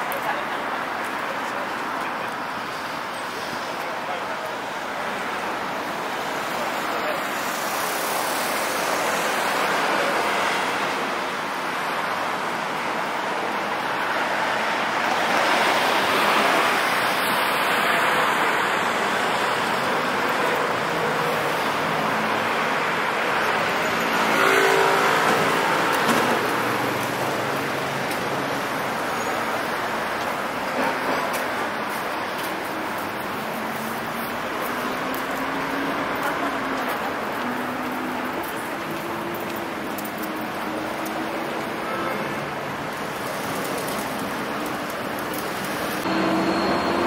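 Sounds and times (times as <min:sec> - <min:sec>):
tyres hissing on wet road: 0:02.0 - 0:47.0.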